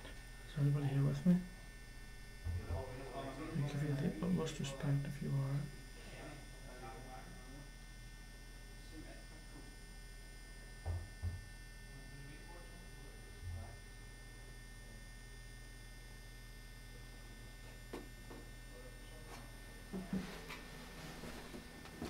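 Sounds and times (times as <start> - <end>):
steady electrical hum: 0.0 - 22.0.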